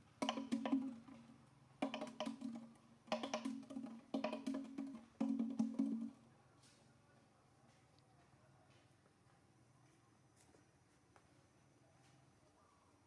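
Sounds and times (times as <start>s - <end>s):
wood-block clicks: 0.0s - 6.2s.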